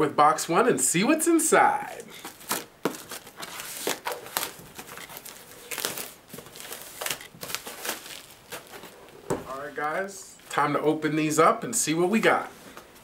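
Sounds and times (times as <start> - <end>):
plastic wrapping crinkling and tearing: 1.9 - 10.6.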